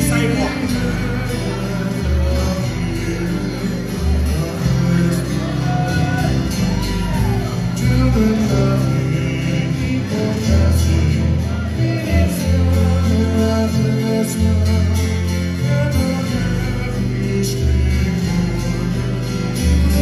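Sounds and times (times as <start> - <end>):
bass notes: 0.0 - 20.0
strummed acoustic guitar: 0.0 - 20.0
ukulele strumming: 0.0 - 20.0.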